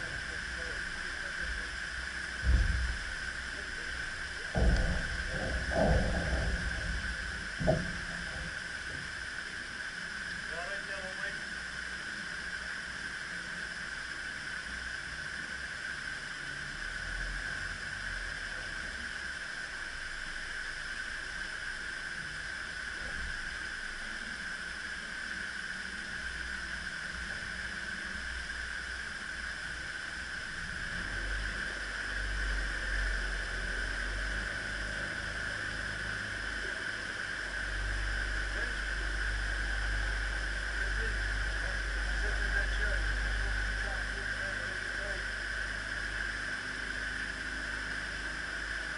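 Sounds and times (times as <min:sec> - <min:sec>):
low rumble: 0:00.0 - 0:12.2
water rushing through lock gates: 0:00.0 - 0:48.9.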